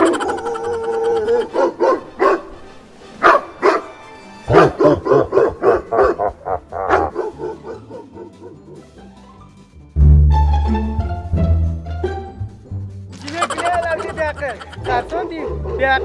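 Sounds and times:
recorded dog barking: 0.0s - 2.6s, 3.2s - 3.9s, 4.5s - 8.8s, 13.4s - 16.0s
music: 0.0s - 16.0s.

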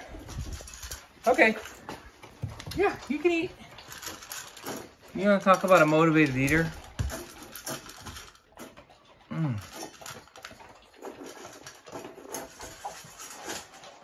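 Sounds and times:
dog crunching kibble in metal bowl: 0.0s - 14.0s
dog grunting: 9.1s - 10.3s.

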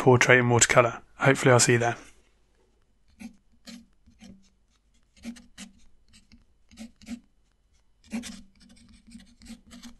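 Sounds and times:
pen nib scratching on paper: 3.0s - 9.9s.

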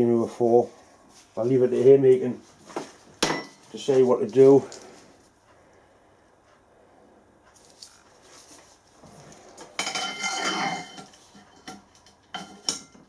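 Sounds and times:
metallic clatter and scrape: 7.6s - 13.0s.

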